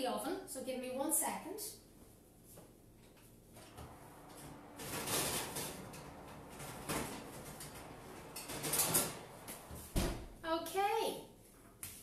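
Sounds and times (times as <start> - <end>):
oven door opening: 3.6 - 10.4
metal baking tray pulled out: 3.7 - 10.0.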